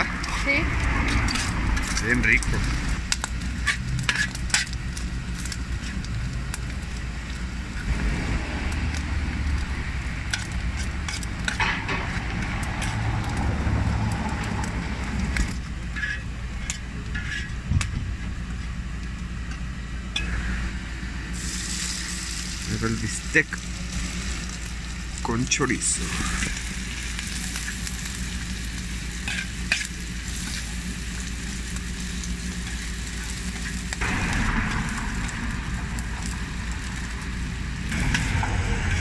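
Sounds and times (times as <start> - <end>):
metal spatula scraping steel: 0.0 - 2.2, 3.6 - 4.8, 10.3 - 13.4, 15.9 - 17.6, 29.2 - 30.6
pork sizzling in bubbling fat: 0.0 - 39.0
steady low hum: 0.0 - 39.0.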